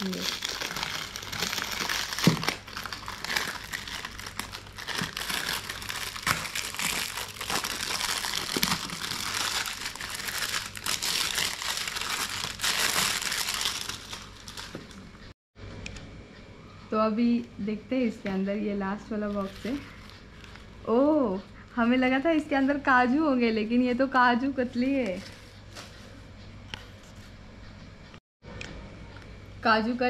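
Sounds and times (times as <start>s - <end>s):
plastic wrapping crinkling: 0.0s - 15.3s.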